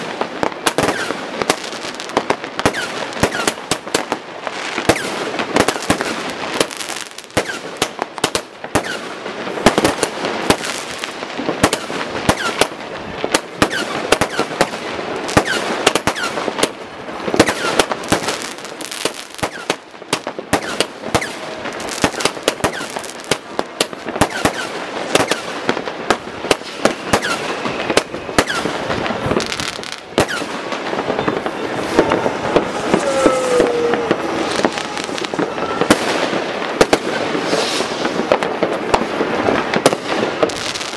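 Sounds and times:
fireworks bangs and crackles: 0.0s - 40.9s
whistling fireworks: 0.0s - 40.9s.

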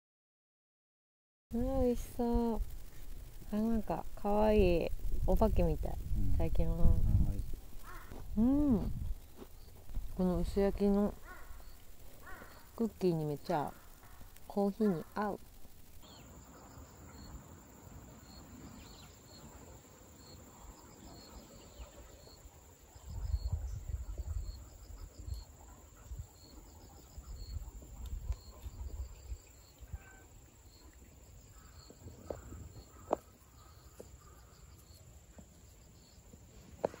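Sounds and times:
low rumble: 1.5s - 12.1s
insects chirping: 1.6s - 37.0s.

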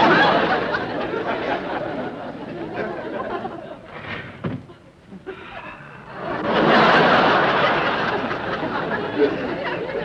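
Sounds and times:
studio audience laughing: 0.0s - 4.0s, 6.0s - 10.0s.

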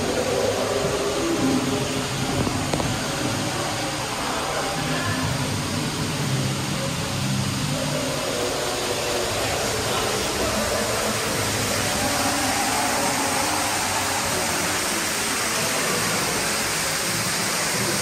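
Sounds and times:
water rushing through channel: 0.0s - 18.0s.

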